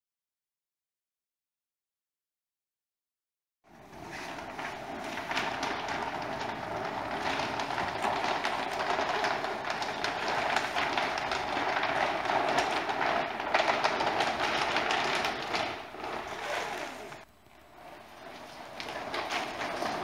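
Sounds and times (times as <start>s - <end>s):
sail cloth crackling: 3.7s - 20.0s.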